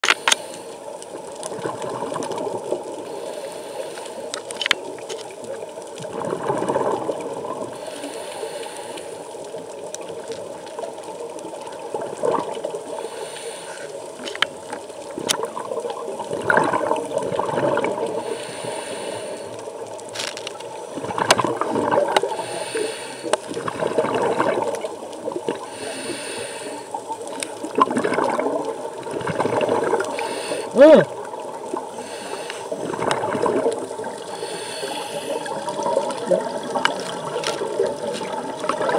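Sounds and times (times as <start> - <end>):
divers breathing out: 3.0 - 4.3, 7.8 - 9.3, 12.9 - 14.0, 18.0 - 19.7, 22.2 - 23.5, 25.6 - 27.1, 30.0 - 33.0, 34.1 - 36.1
regulator exhaust bubbles gurgling: 15.4 - 18.2, 23.5 - 25.7, 27.6 - 30.2.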